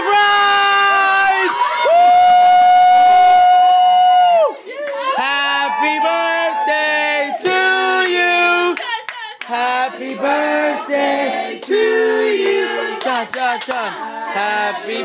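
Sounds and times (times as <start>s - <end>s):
group of voices singing: 4.7s - 15.0s.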